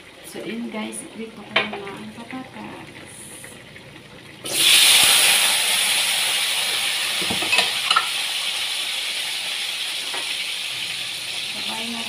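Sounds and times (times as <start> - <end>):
potatoes sizzling in oil: 4.4 - 12.0.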